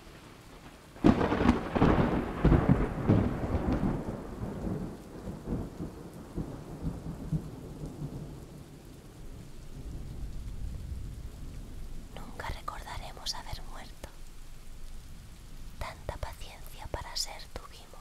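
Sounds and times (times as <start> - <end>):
steady falling rain: 0.0 - 18.0
thunder clap rolling: 1.0 - 8.6.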